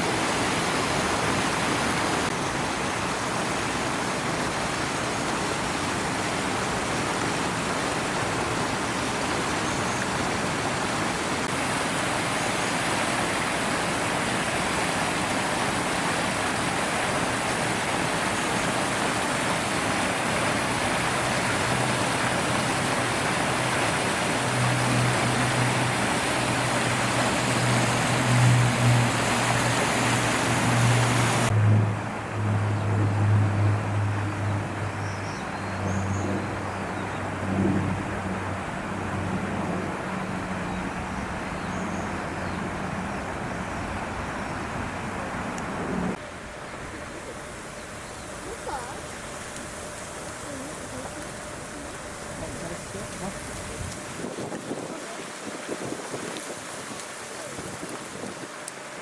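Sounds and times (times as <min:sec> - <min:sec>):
water rushing over a weir: 0:00.0 - 0:59.0
low motor hum: 0:17.8 - 0:54.3.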